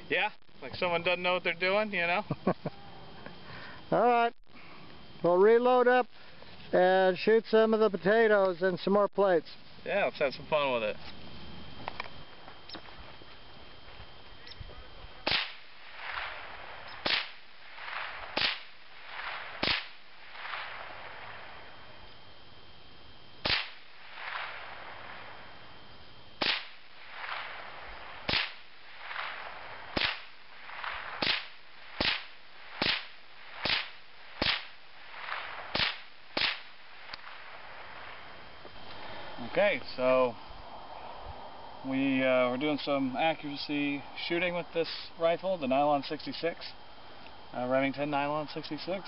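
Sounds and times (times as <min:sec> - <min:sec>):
rifle shots with echo: 0:15.2 - 0:21.7, 0:23.4 - 0:25.5, 0:26.4 - 0:38.4.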